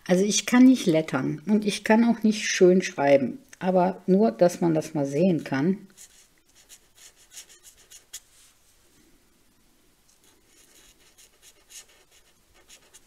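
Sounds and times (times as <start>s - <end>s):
marker pen scratching on card: 6.0s - 8.3s, 10.5s - 13.0s.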